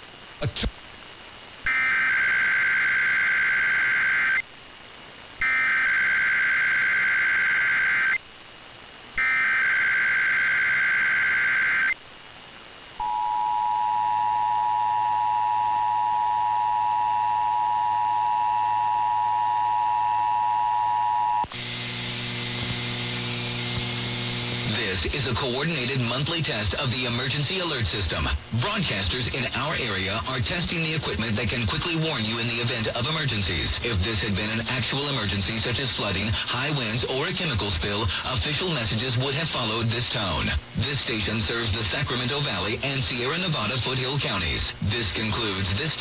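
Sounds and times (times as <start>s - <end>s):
radio hiss: 0.0s - 13.1s, 14.5s - 46.0s
low hum: 0.0s - 24.8s
data tone bursts: 1.7s - 4.4s, 5.4s - 8.2s, 9.2s - 12.0s, 13.0s - 21.5s
two-tone attention signal: 13.0s - 21.5s.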